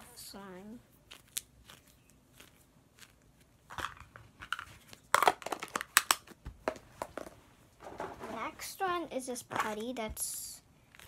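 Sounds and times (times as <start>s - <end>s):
slime squelching: 0.9s - 3.7s.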